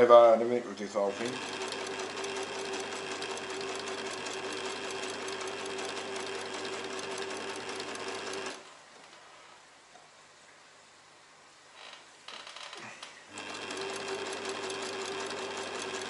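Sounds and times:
sewing machine stitching: 1.1 - 8.6, 13.3 - 16.0.

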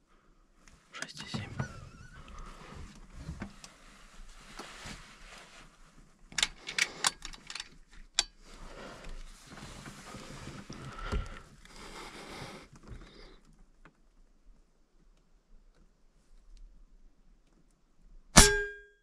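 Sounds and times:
rustling: 0.7 - 14.2
air rifle handling clicks and knocks: 6.3 - 8.4.

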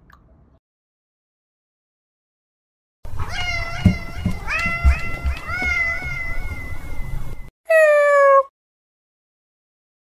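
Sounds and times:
cat meowing: 3.2 - 7.1, 7.7 - 8.5.

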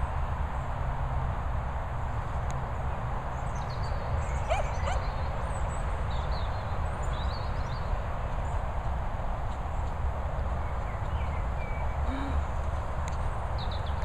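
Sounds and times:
low outdoor rumble: 0.0 - 14.0
dog yipping: 4.4 - 5.1.

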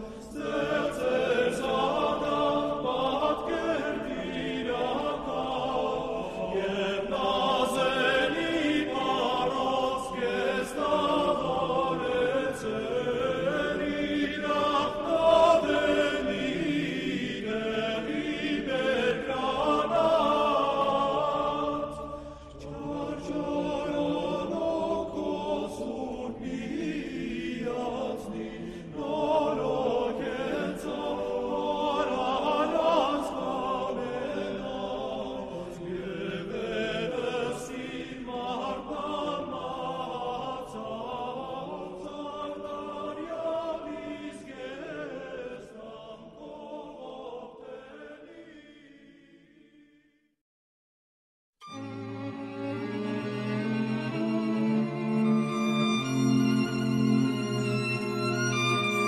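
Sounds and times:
choir singing chant-like music: 0.0 - 50.2, 51.6 - 59.0.

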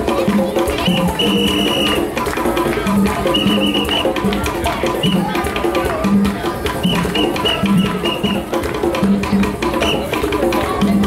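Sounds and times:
hand drums playing rhythm: 0.0 - 11.0.

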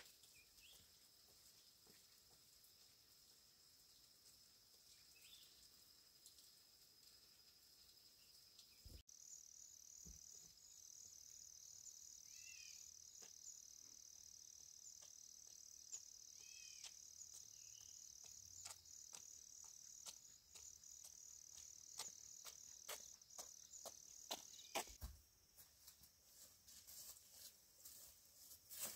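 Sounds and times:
insects trilling: 0.0 - 28.9
pulsing insect chirr: 2.5 - 25.0
bird chirps: 8.2 - 25.0.

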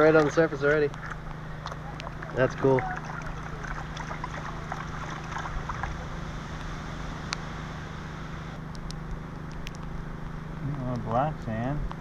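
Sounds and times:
water sloshing in a pan: 0.0 - 6.3
engine humming: 0.0 - 12.0.

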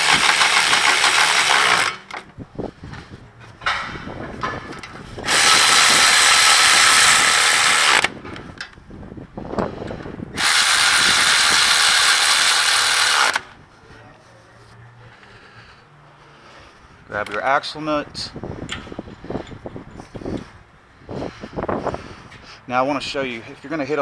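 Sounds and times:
electric ratchet running: 0.0 - 2.0, 5.2 - 8.1, 10.4 - 13.5.

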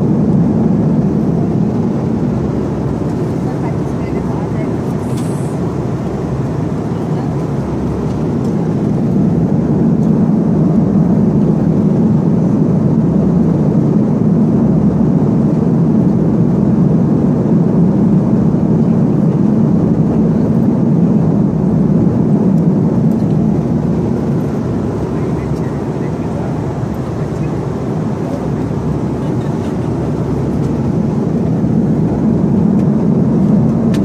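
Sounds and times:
jet airliner cabin drone: 0.0 - 34.0.

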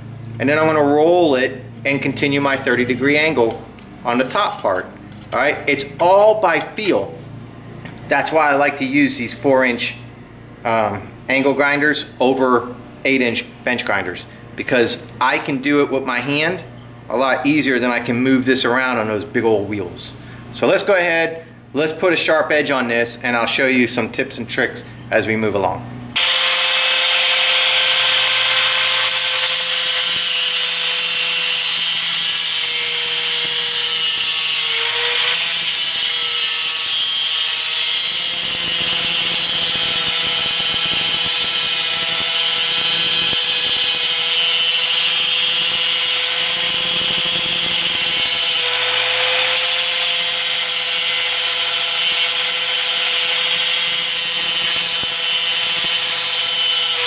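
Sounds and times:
angle grinder grinding metal: 26.2 - 57.0.

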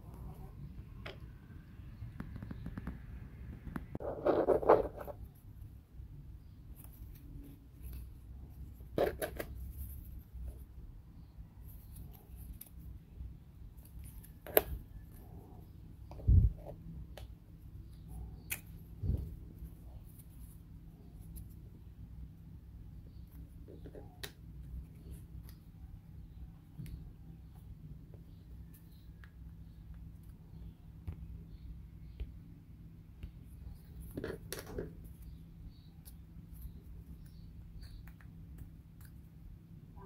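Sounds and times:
wooden pieces clicking and tapping: 36.0 - 39.3.

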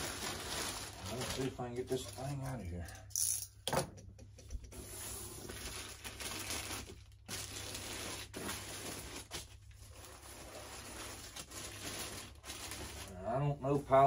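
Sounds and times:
cardboard and bag rustling: 4.9 - 13.2.

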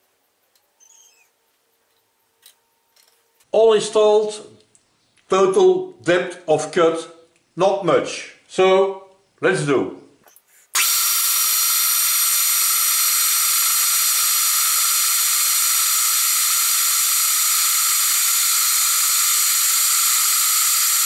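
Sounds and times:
milling machine hissing: 10.7 - 21.0.

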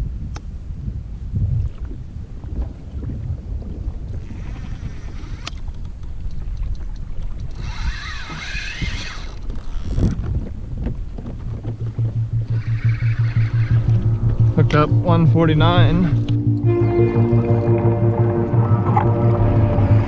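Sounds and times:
choppy water rushing: 0.0 - 20.0
wind: 0.0 - 20.0
wavering high whine: 12.0 - 20.0.

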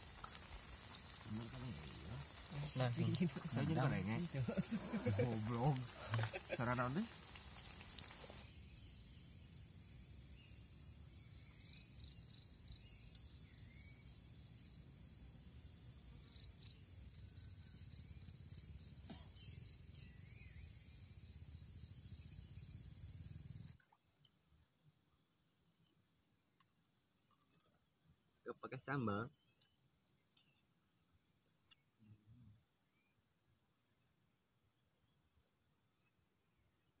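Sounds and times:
sausages sizzling in a pan: 0.0 - 8.5
pulsed insect chirping: 0.0 - 14.8
insect trill: 0.0 - 37.0.

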